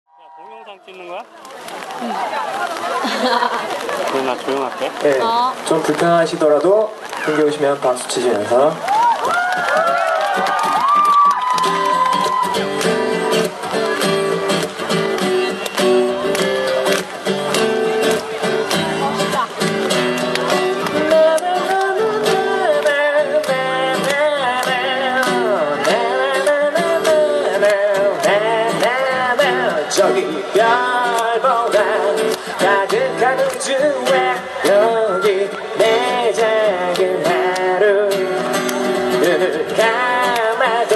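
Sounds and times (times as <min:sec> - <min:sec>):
acoustic guitar strumming: 0:11.2 - 0:40.9
man singing: 0:20.8 - 0:40.9.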